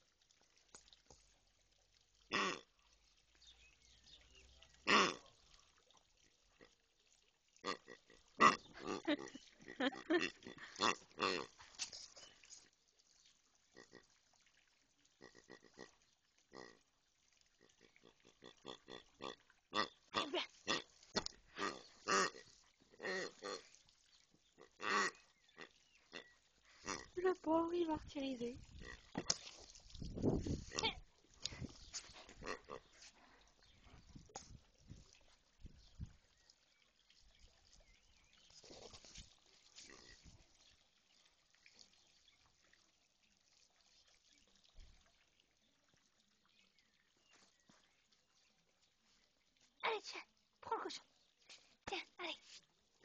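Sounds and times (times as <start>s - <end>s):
pig purring grunts: 24.6s - 27.2s.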